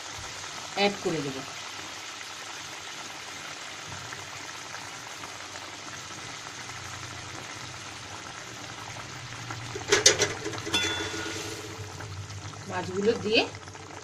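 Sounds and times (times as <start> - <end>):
gravy bubbling in a wok: 0.0 - 14.0
sharp knocks against pan: 9.8 - 11.2.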